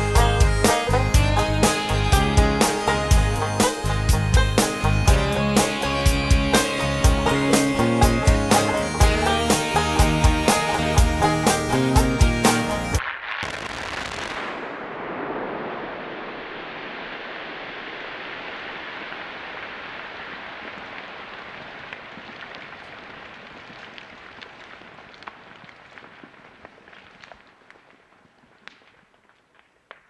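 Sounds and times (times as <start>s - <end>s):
rock blast: 0.0s - 17.6s
small rocks landing ticks: 21.9s - 30.0s.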